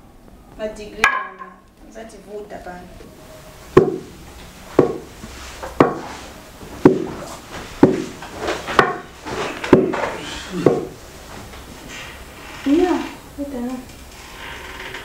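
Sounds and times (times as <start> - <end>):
wooden pestle pounding in mortar: 3.8 - 4.1, 4.8 - 5.1, 5.7 - 6.1, 6.8 - 7.2, 7.8 - 9.1, 9.7 - 11.0.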